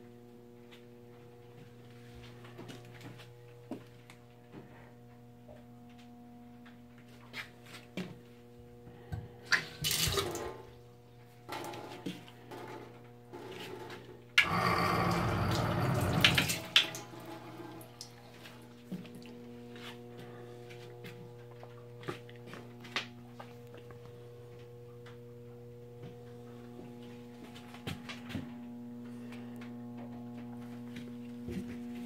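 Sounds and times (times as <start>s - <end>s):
steady low hum: 0.0s - 32.0s
water running into metal sink: 9.8s - 10.6s, 14.4s - 18.1s.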